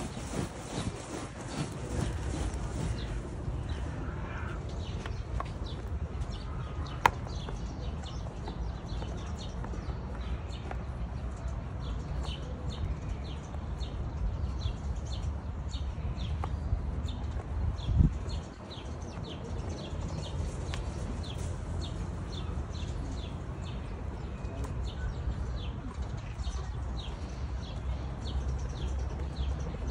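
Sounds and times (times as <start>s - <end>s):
steady low rumble: 0.0s - 10.5s.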